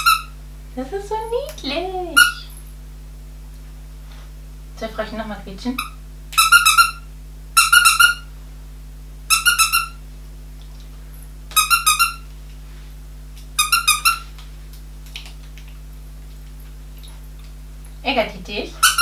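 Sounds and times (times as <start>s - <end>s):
dog toy squeaking: 0.0s - 0.3s, 2.2s - 2.6s, 5.8s - 7.0s, 7.6s - 8.2s, 9.3s - 10.0s, 11.5s - 12.2s, 13.6s - 14.3s, 18.8s - 19.0s.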